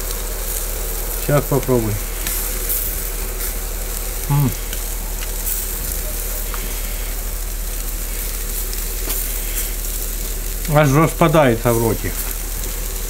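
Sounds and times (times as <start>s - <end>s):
meat sizzling over charcoal: 0.0s - 13.0s
man humming while chewing: 4.2s - 5.0s.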